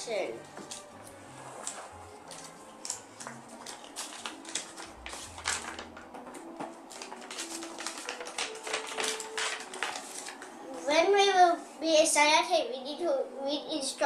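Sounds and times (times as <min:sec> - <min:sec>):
paper rustling and crinkling: 0:00.4 - 0:10.6.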